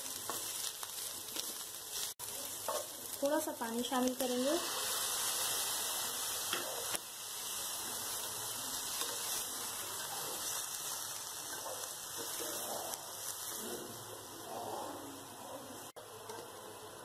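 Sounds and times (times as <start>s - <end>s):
chicken sizzling in oil: 0.0s - 14.4s
water hissing in hot oil: 0.0s - 14.7s.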